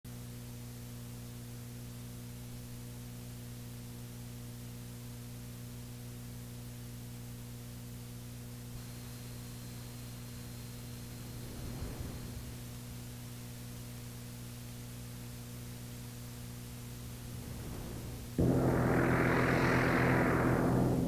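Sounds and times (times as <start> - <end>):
low electrical hum: 0.1 - 21.0
faint high whine: 7.9 - 21.0
tape hiss: 8.4 - 21.0.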